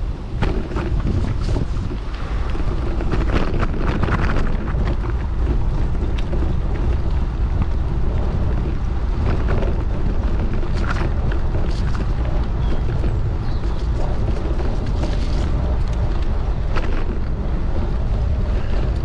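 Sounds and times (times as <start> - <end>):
moving vehicle running: 0.0 - 19.0
wind rumbling on microphone: 0.0 - 19.0.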